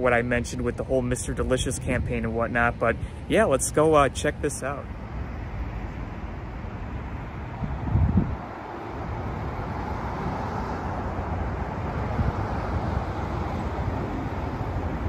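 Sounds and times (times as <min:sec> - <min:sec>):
road traffic noise: 0:00.0 - 0:15.0
wind rumbling on microphone: 0:04.9 - 0:15.0.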